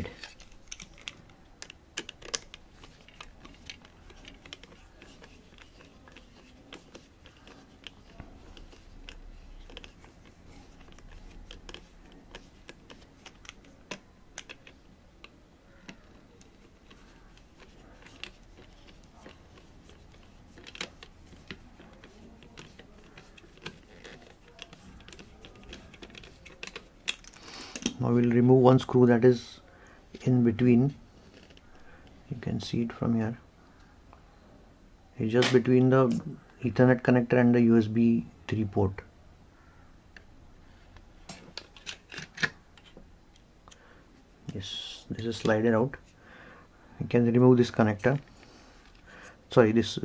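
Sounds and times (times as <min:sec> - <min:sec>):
plastic casing being handled: 0:00.0 - 0:28.0, 0:40.9 - 0:43.8.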